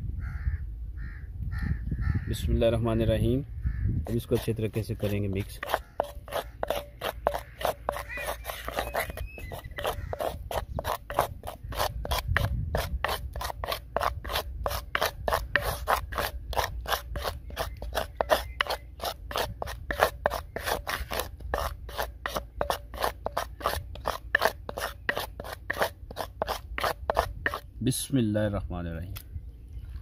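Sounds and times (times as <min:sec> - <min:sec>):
wooden spatula scraping clay bowl: 0:04.0 - 0:27.7.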